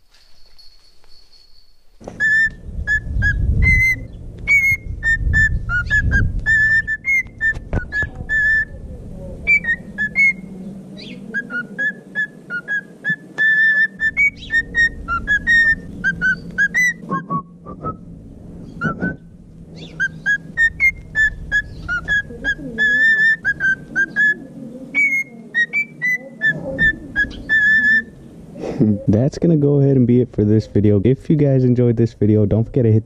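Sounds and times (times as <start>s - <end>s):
cockatiel whistling: 1.4s - 8.8s, 9.5s - 28.2s.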